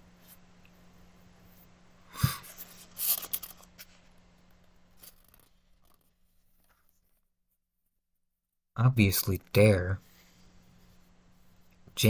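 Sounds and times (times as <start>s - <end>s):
paper page rustling: 2.5s - 4.1s.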